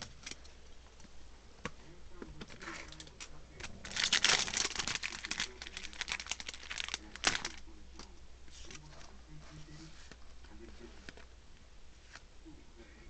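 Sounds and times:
foil wrapper crinkling: 2.5 - 7.6.

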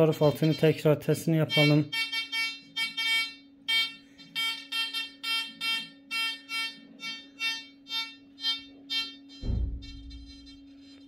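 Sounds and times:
steady low hum: 0.0 - 11.0
metal detector beeping: 0.1 - 0.9, 1.5 - 11.0.

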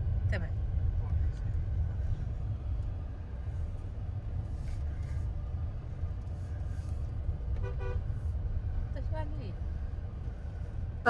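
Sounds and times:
car rumbling on dirt road: 0.0 - 11.0
car horn toot: 7.6 - 8.0.

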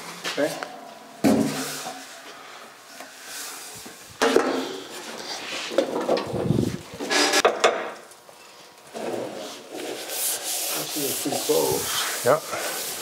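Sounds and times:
metal sheet scraping rumble: 5.8 - 7.3.

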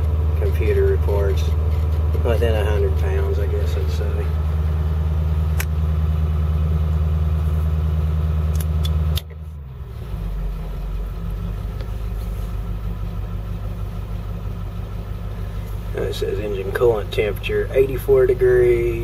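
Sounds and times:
diesel engine revving and idling: 0.0 - 19.0.

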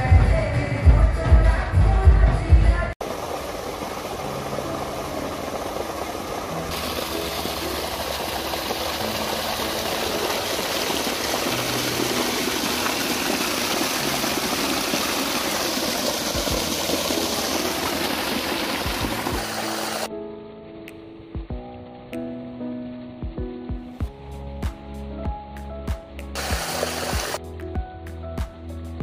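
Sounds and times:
water gushing into tank: 3.0 - 20.1, 26.4 - 27.4.

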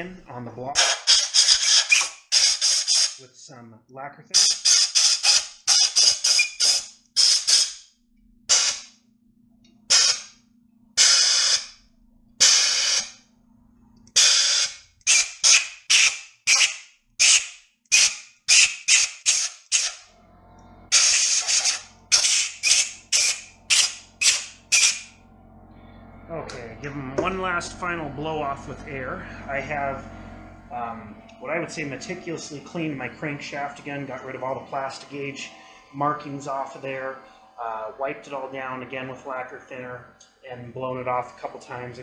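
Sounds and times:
compressed air blow gun hissing: 20.9 - 25.2.

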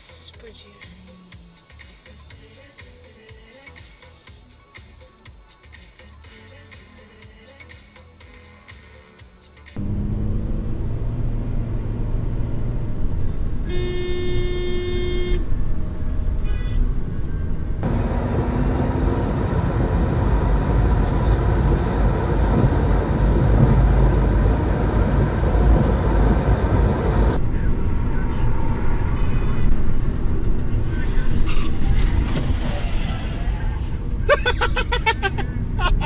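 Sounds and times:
deep rumble: 9.8 - 34.3
traffic noise: 9.8 - 36.0
car horn: 13.6 - 15.6, 16.3 - 17.0.

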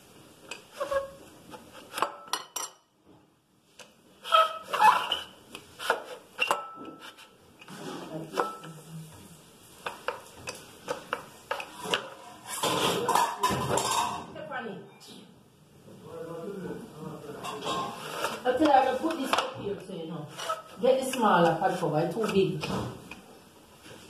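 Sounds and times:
rolling pin rubbing dough: 0.5 - 2.2, 4.2 - 8.9, 17.9 - 23.2.

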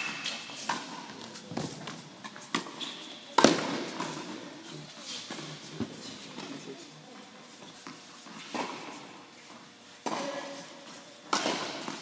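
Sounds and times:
tennis balls hit with rackets: 0.0 - 4.4, 10.0 - 12.0.

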